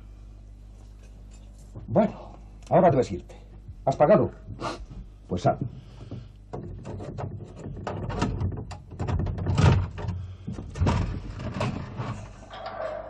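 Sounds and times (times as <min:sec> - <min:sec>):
heavy door unlocking and opening: 0:11.5 - 0:13.0.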